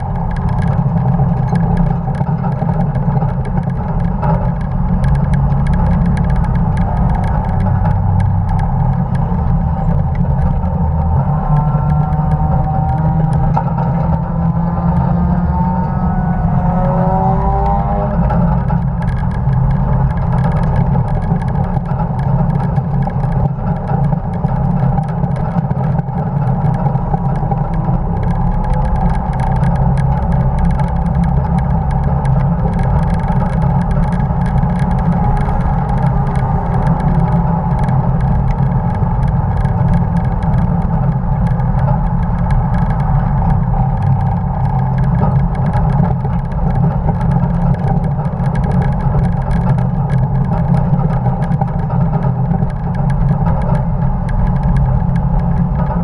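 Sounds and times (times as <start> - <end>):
fine rattle: 0.0 - 56.0
truck engine under load: 0.0 - 56.0
wind and road noise: 0.0 - 56.0.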